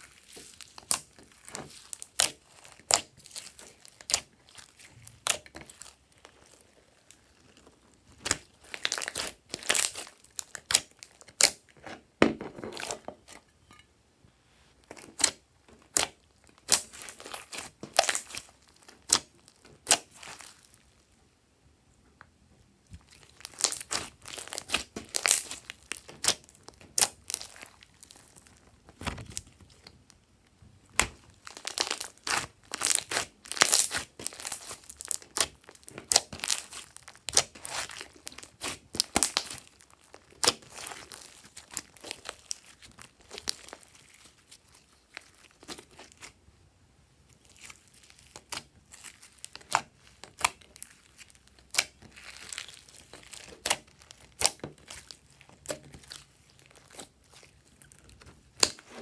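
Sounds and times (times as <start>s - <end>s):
slime popping and squishing: 0.0s - 11.7s, 15.2s - 20.7s, 22.9s - 29.9s, 30.8s - 46.4s, 47.4s - 59.0s.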